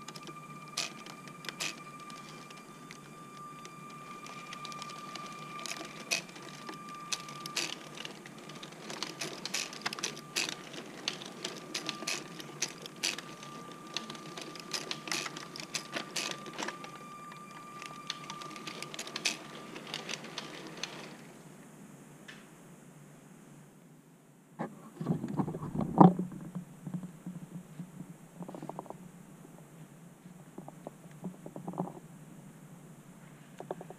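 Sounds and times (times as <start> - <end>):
model train wheels clicking and rattling: 0.0 - 21.3
high motor whine: 0.0 - 21.4.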